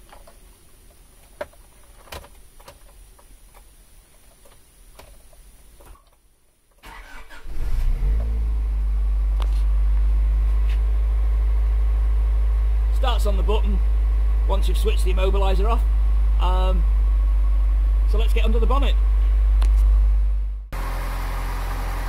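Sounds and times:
car engine cranking and starting: 6.8s - 22.0s
car engine idling: 6.8s - 22.0s.

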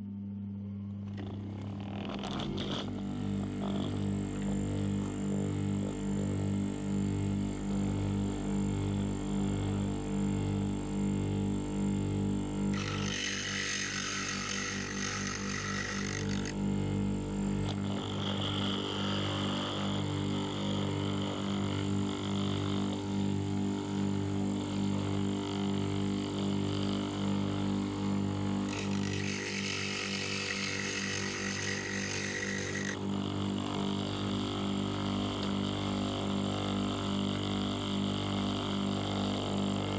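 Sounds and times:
bench grinder motor humming: 0.9s - 6.2s, 12.5s - 39.9s
drill bit grinding on wheel: 12.7s - 16.6s, 17.6s - 23.2s, 28.6s - 34.3s.

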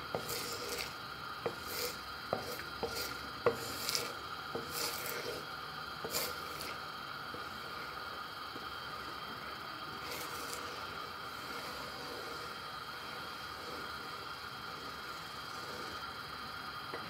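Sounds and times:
wooden spatula scraping pan: 0.0s - 6.8s.

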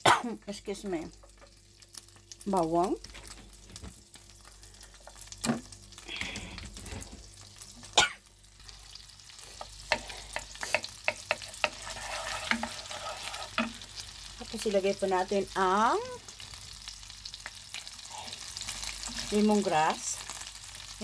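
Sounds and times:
garlic sizzling in butter: 0.3s - 21.0s
wooden spoon knocking on pan: 9.9s - 11.9s, 13.6s - 13.8s.

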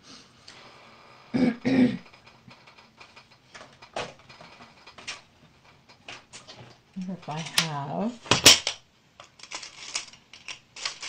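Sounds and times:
person clearing throat: 1.4s - 2.1s.

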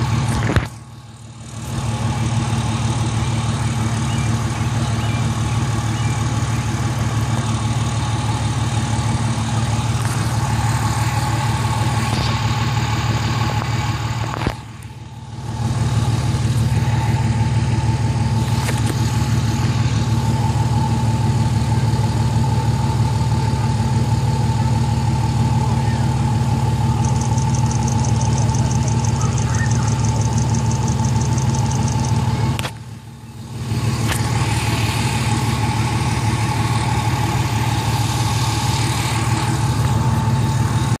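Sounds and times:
engine running with whine: 0.0s - 41.0s.

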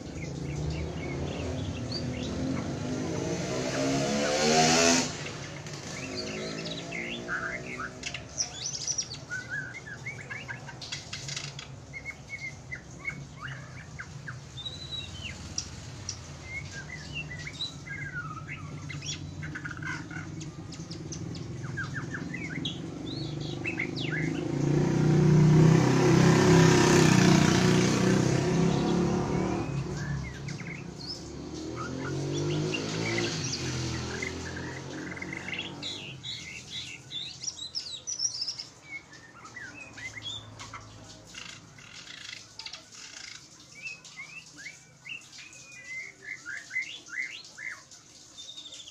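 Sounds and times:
bird chirping and whistling: 4.7s - 25.0s, 27.3s - 40.8s.

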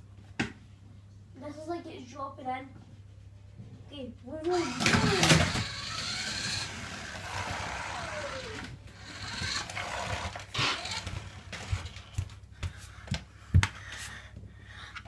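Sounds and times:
toy car electric motor whirring: 4.5s - 11.9s.

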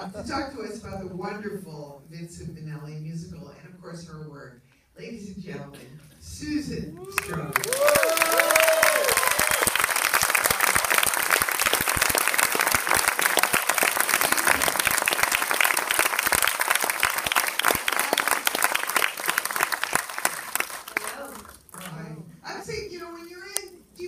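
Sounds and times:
audience applauding: 7.1s - 22.0s.

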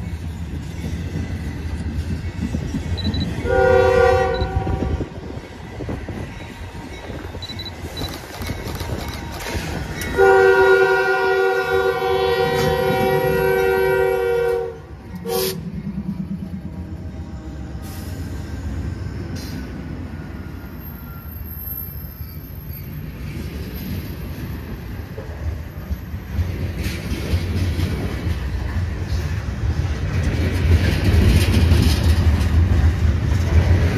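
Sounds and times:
train wheels clattering on rails: 0.0s - 14.1s, 23.2s - 33.9s
locomotive air horn: 3.4s - 5.1s, 10.2s - 15.6s.

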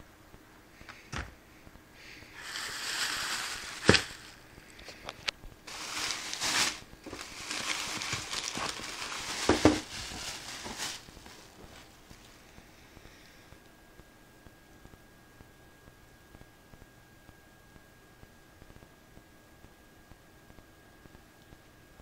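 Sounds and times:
plastic and paper crinkling: 2.4s - 5.1s, 5.7s - 12.5s.

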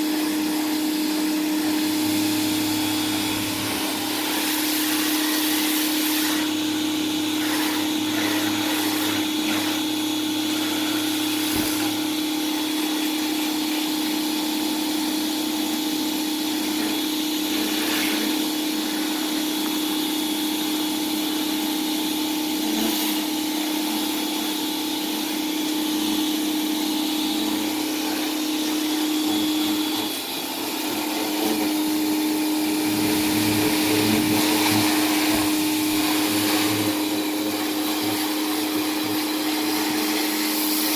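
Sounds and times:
pressure washer hum: 0.0s - 40.9s.

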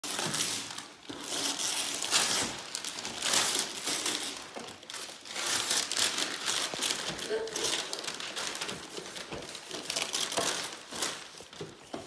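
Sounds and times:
wrapping paper tearing and crumpling: 0.0s - 11.9s.

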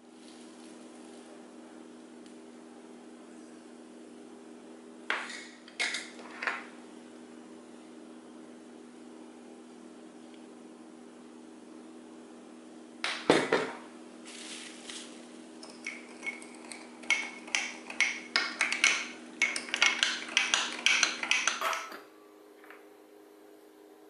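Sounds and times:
spoon tapping on jar: 15.6s - 22.0s.

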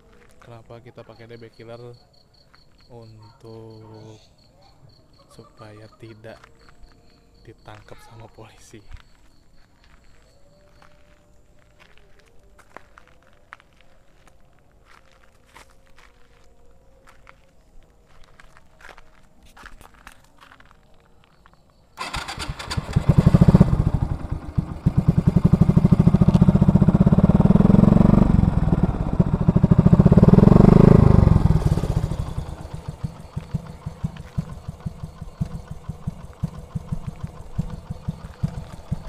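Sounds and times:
motorcycle engine revving and idling: 22.0s - 39.0s.

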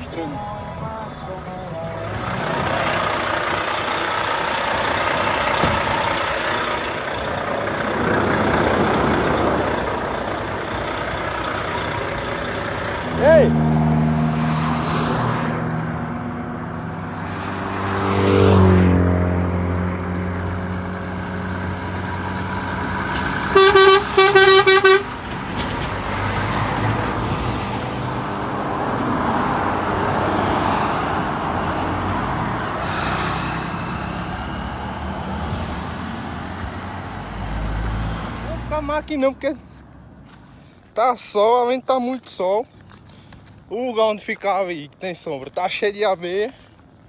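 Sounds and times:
tyre and road noise: 0.0s - 47.0s
truck diesel engine revving: 1.7s - 39.2s
truck horn toots: 23.5s - 25.2s.

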